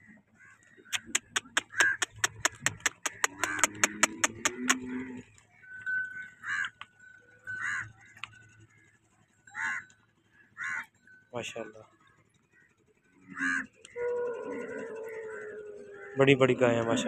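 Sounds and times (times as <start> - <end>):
crows cawing: 0.4 - 4.8, 6.2 - 6.9, 7.5 - 10.0, 10.6 - 10.9, 13.2 - 17.0
cow bell clanking: 1.0 - 5.0, 5.6 - 12.2
cow mooing: 3.1 - 5.3, 13.3 - 17.0.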